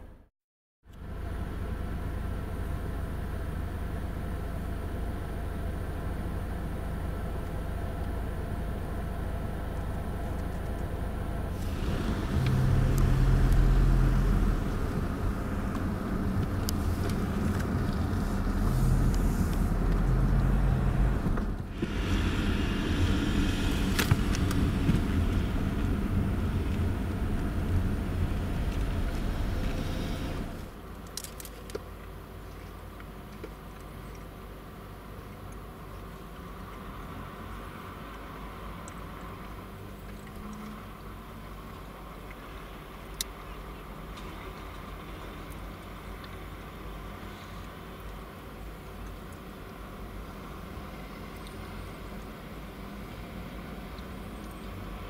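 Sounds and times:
car engine from inside cabin: 0.9 - 30.8.

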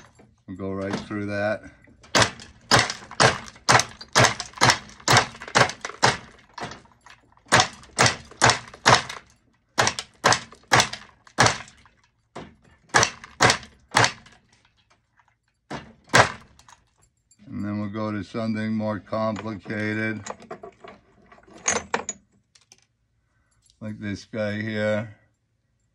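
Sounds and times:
cutting machine clacking: 2.1 - 6.8, 7.5 - 9.2, 9.8 - 11.8.

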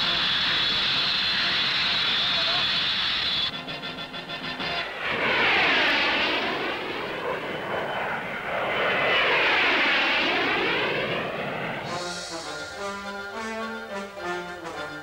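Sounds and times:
jets passing low: 0.0 - 15.0.

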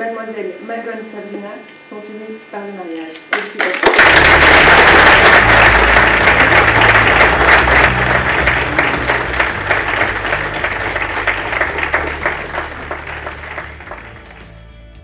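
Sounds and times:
guests clapping: 3.3 - 14.8.

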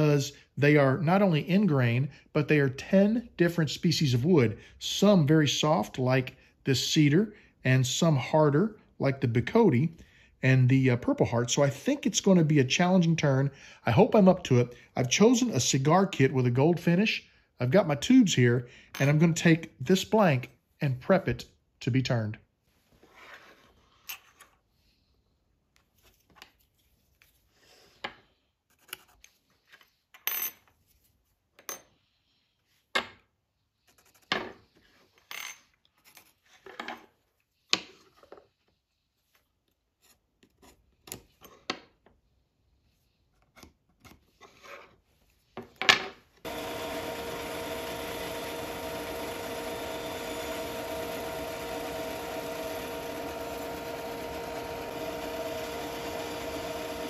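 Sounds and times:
bandsaw humming: 46.4 - 57.0.

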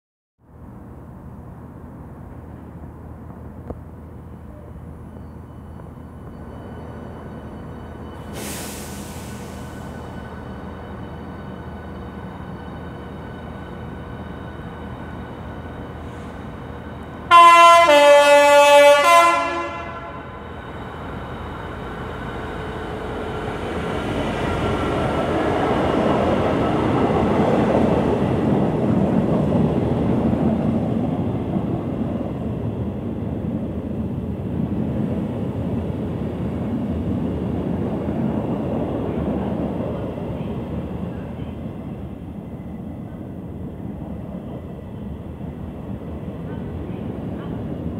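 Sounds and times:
freight train rumbling past: 0.4 - 47.9
two-tone locomotive horn: 17.2 - 20.4.

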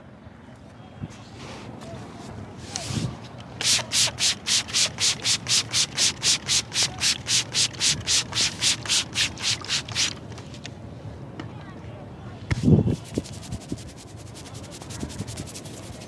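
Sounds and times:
spray bottle hissing sprays: 3.6 - 10.3.

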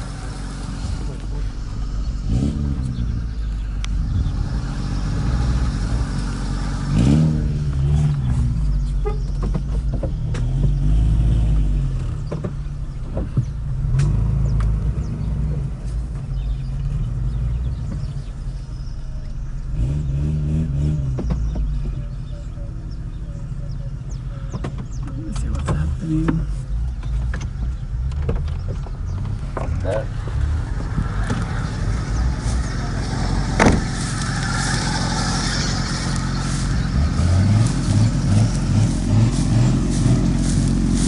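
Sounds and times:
engine running under load: 0.0 - 41.0
vehicle knocks and rattles: 7.9 - 10.9, 12.0 - 14.7, 21.0 - 22.2, 24.5 - 31.6, 32.2 - 34.5.

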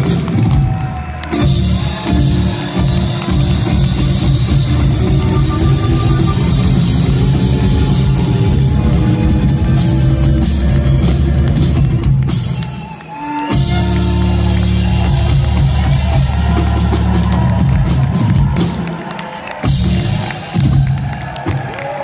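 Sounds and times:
live rock band playing: 0.0 - 21.6.

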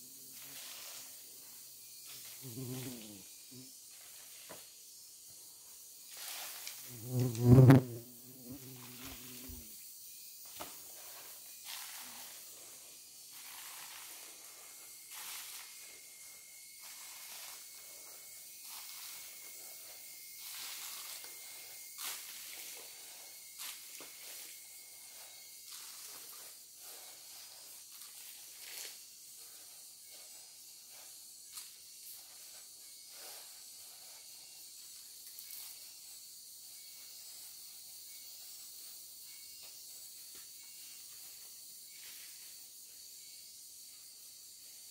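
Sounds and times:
insect hiss: 0.0 - 44.9
footsteps in leaf litter: 13.3 - 16.0, 16.8 - 17.9, 18.6 - 29.6.

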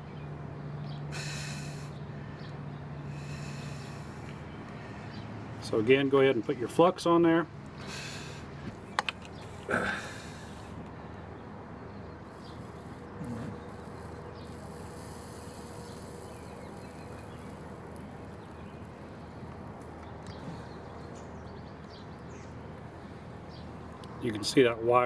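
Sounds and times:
steady background hiss: 1.0 - 2.2.

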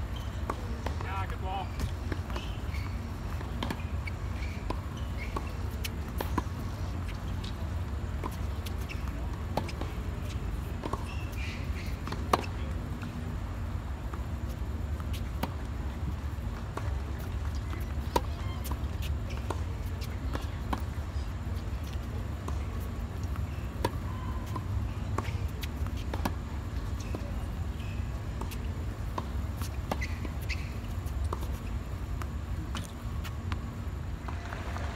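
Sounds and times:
tennis balls bouncing: 0.2 - 13.4, 14.0 - 34.9.

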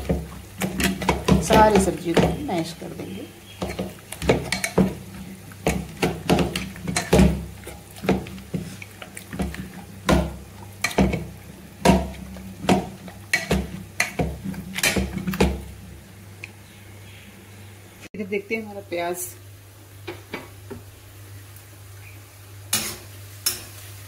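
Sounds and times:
potato masher thumping vegetables: 0.0 - 2.5, 5.6 - 8.6, 9.4 - 15.6.

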